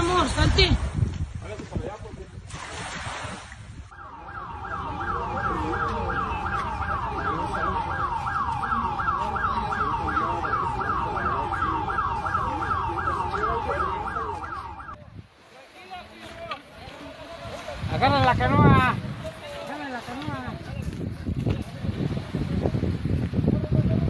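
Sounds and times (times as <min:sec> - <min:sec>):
siren fast falling wail: 0:03.9 - 0:15.0.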